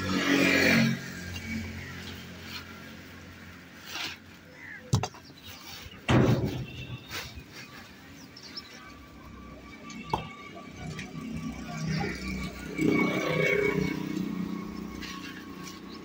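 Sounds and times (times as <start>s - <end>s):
plastic sheeting rustling: 5.4s - 8.8s.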